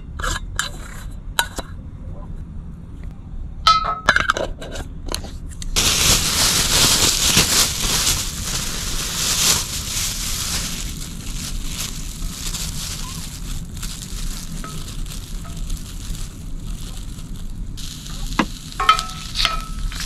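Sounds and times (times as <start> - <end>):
plastic bag crinkling: 5.8 - 20.0
mushrooms sizzling in a skillet: 16.7 - 20.0.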